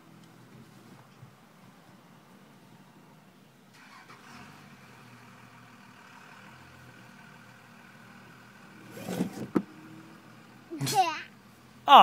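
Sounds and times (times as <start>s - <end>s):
seatbelt snapping back: 8.9s - 9.7s.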